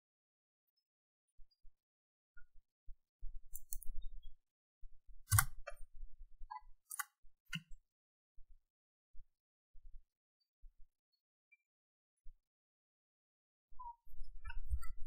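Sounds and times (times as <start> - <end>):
mouse and keyboard clicks: 3.5 - 3.9, 5.3 - 5.8, 6.9 - 7.7.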